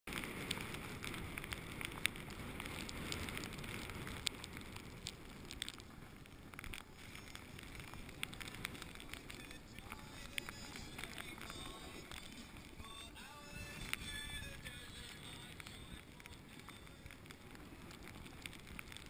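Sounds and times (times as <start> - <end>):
board scraping over snow: 0.1 - 19.0
wind rumbling on microphone: 0.1 - 19.0.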